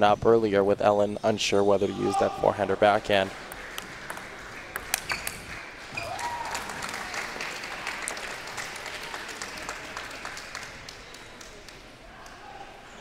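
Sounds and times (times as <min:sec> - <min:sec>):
spectators clapping: 0:03.3 - 0:12.4.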